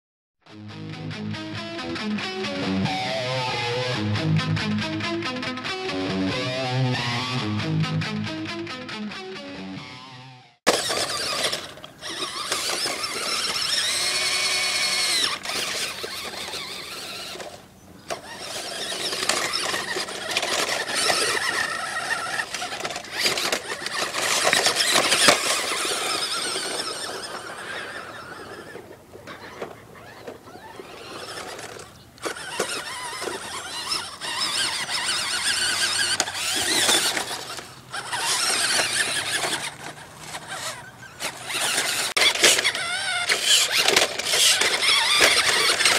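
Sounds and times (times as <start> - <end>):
toy truck motor whining: 2.0 - 4.1, 5.7 - 7.4, 9.6 - 45.9
tyres scrabbling over rocks: 10.7 - 45.9.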